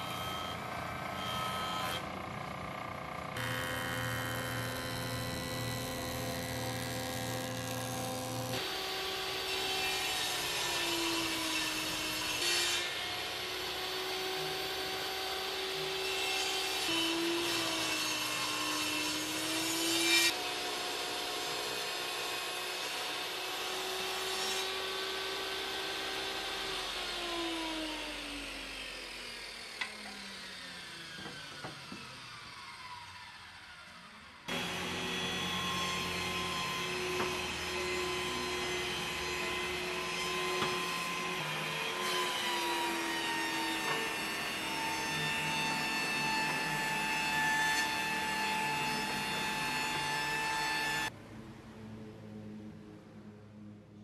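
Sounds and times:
table saw ripping boards: 34.5s - 51.1s.

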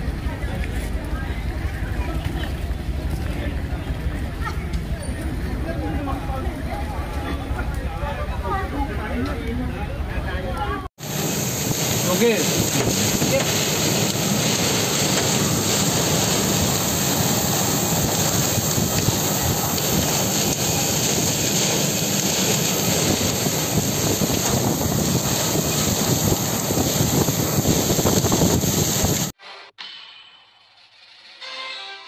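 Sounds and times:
heavy rain pouring: 11.0s - 29.4s
wind gusting on microphone: 11.0s - 29.4s.

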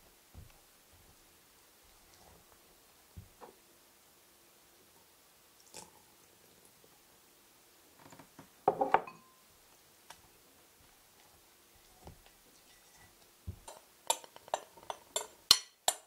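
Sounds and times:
clink against glass: 8.9s - 9.4s.

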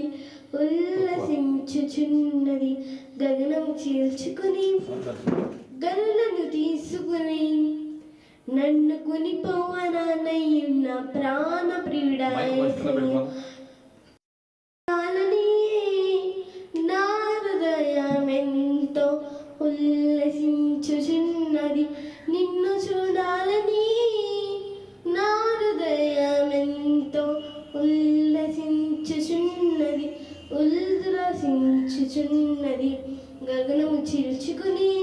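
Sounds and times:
girl singing into microphone: 0.0s - 13.8s, 14.9s - 35.0s
singer breathing: 0.1s - 0.6s, 2.8s - 3.2s, 8.0s - 8.5s, 13.3s - 14.0s, 16.4s - 16.8s, 21.9s - 22.3s, 30.2s - 30.4s.

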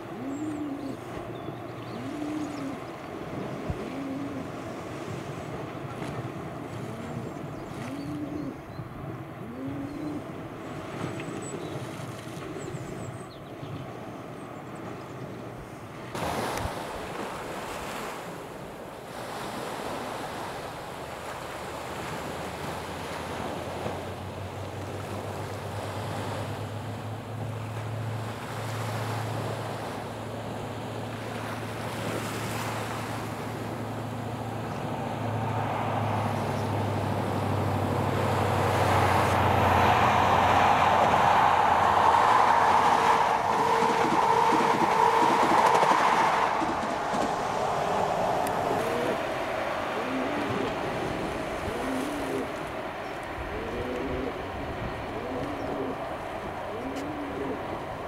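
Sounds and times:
low engine hum: 0.0s - 16.2s, 21.0s - 58.0s
sea waves washing on wall: 16.1s - 53.5s
diesel train approaching: 23.3s - 58.0s.

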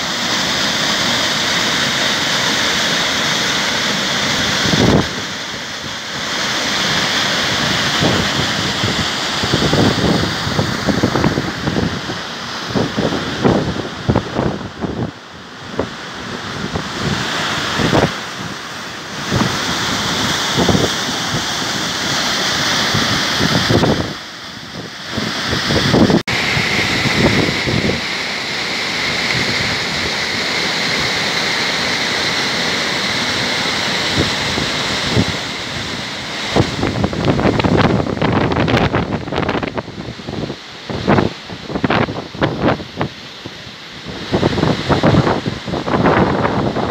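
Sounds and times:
waterfall roaring: 0.0s - 46.9s
wind buffeting microphone: 7.5s - 18.6s, 19.2s - 22.1s, 22.7s - 28.1s, 34.1s - 46.9s.

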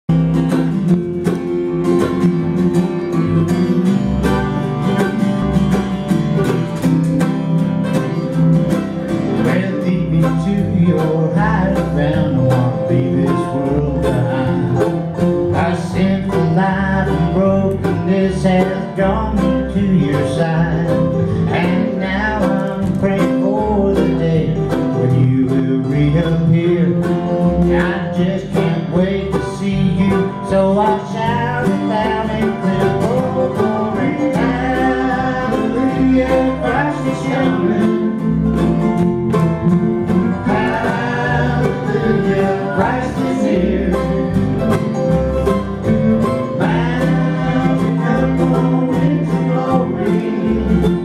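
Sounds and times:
low bass line: 0.0s - 51.0s
acoustic guitar strumming: 0.1s - 51.0s
man singing: 9.3s - 38.4s, 40.1s - 44.4s, 46.4s - 51.0s.

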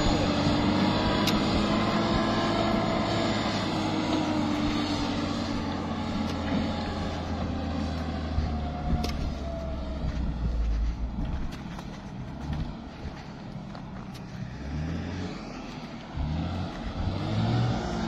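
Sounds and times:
truck engine driving away: 0.0s - 18.0s.

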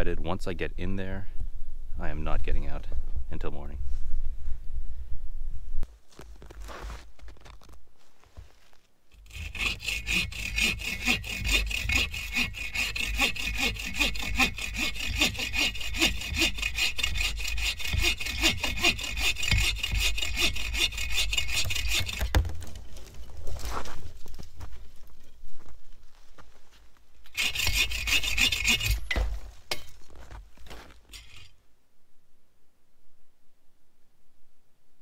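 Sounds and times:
bow saw cutting wood: 9.2s - 22.7s, 27.3s - 29.8s, 31.1s - 31.5s.

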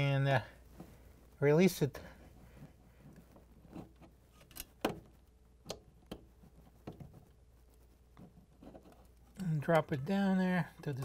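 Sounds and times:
faint metallic clicks and taps: 2.6s - 9.6s.

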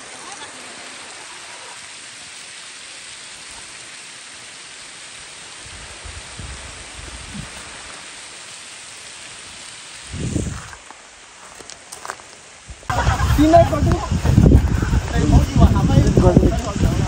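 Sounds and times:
waterfall rushing: 0.0s - 17.0s
low rumbles: 12.7s - 17.0s.

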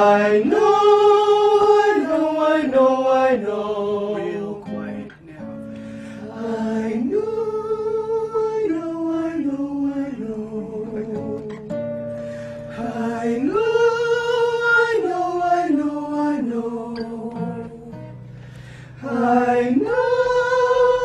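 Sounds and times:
acoustic guitar: 0.0s - 21.0s.

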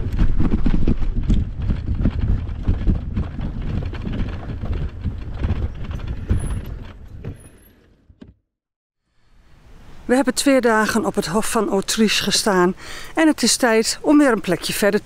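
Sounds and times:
wind buffeting microphone: 0.0s - 7.6s.

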